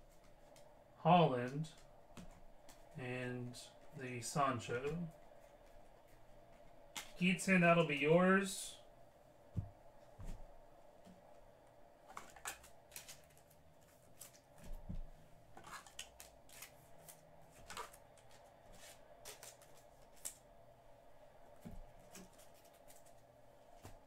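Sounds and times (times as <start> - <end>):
low room hum: 0.0 - 24.0
trading cards being handled: 12.0 - 20.5, 21.6 - 24.0.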